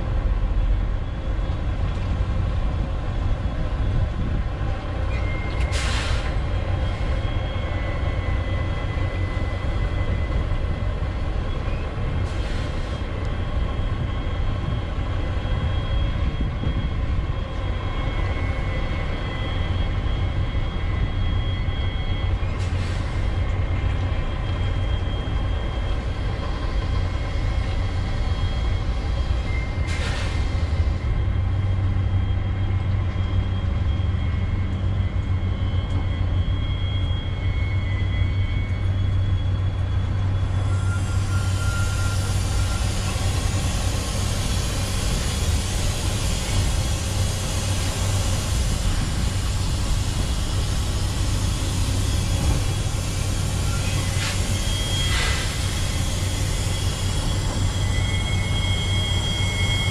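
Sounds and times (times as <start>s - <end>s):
rushing hiss: 5.7s - 6.4s, 40.7s - 59.9s
high squealing tones: 32.3s - 46.9s, 47.6s - 59.9s.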